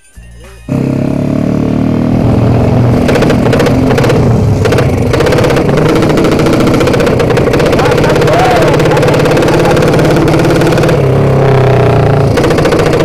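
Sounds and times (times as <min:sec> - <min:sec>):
motorcycle engine running hard: 0:00.7 - 0:13.0.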